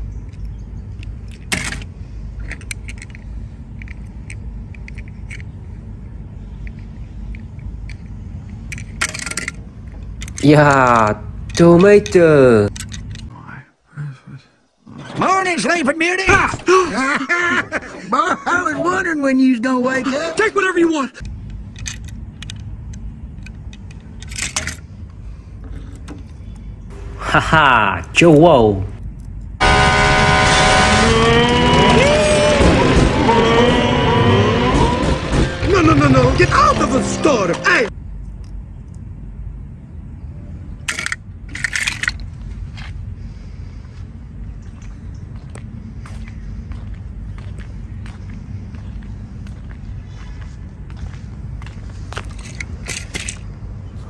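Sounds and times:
steady low rumble: 0.0 - 13.8, 21.2 - 29.6, 34.6 - 54.0.

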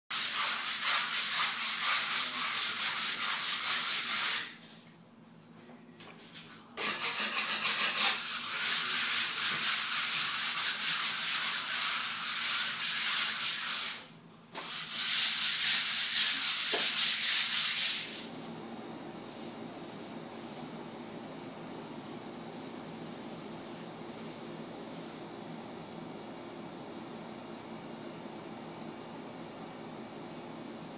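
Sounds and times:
sandpaper rubbing on a wall: 0.1 - 4.6, 6.8 - 18.5, 22.0 - 25.3.

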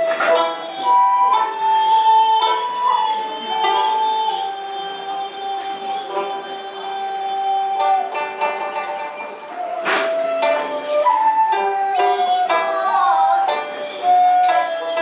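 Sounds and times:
bamboo flute gliding notes: 0.0 - 15.0
plucked lute: 0.0 - 15.0
woman singing: 10.7 - 15.0.

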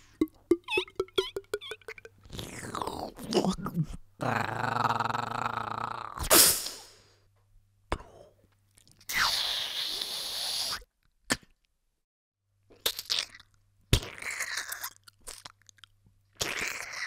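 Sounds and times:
mouth clicks: 0.0 - 3.7
vocal sneeze effect: 6.2 - 6.9.

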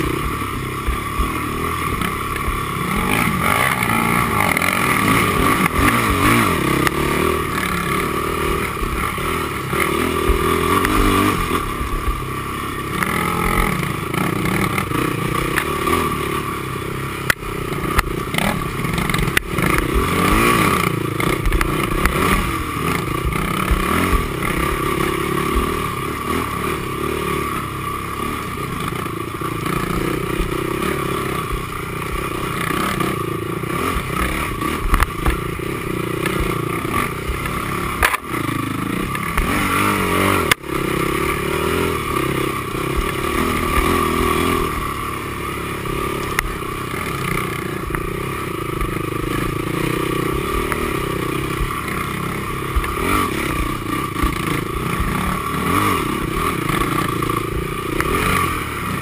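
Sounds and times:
quad engine revving under load: 0.0 - 59.0.

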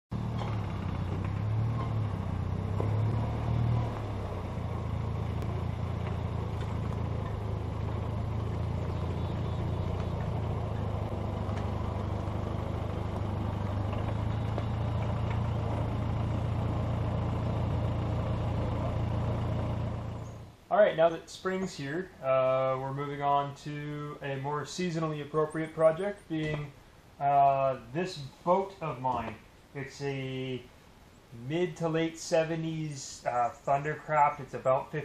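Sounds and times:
small tractor engine running: 0.1 - 20.6.

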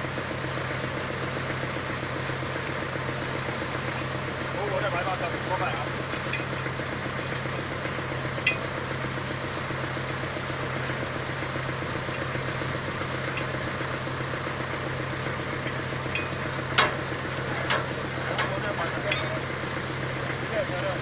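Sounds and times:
drilling rig running: 0.0 - 21.0
water hiss and spatter: 0.6 - 21.0
sharp metallic clank: 8.4 - 8.7, 16.1 - 19.4.

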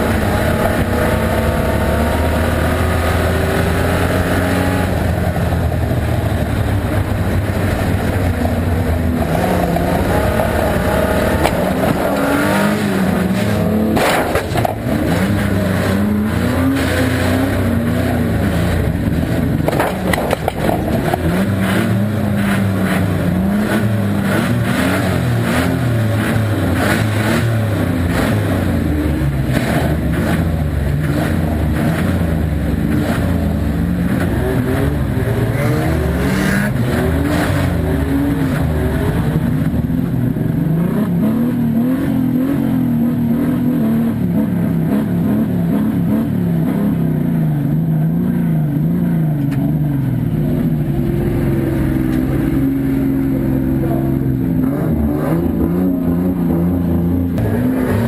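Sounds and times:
car engine revving: 0.0 - 58.0
sharp knocks and clatters: 13.4 - 14.9, 19.6 - 21.4.

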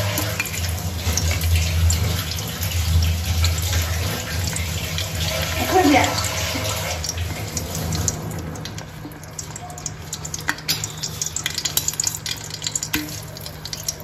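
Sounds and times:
butter sizzling in oil: 0.0 - 14.0
fat crackling and popping: 6.6 - 14.0.

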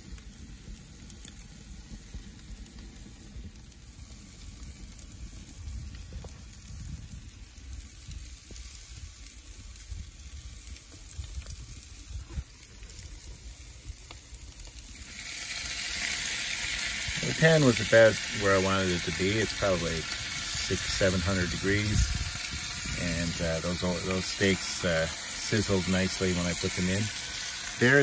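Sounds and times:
faint pops from fire: 0.0 - 17.3
food sizzling in oven: 0.0 - 28.0.

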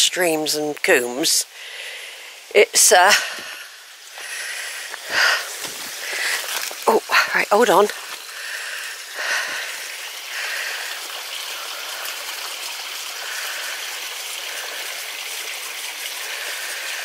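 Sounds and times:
stream running over rocks: 0.0 - 17.0.

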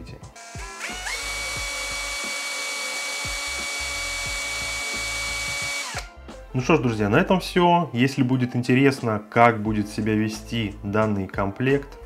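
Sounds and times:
cordless drill motor whine: 0.4 - 6.1.

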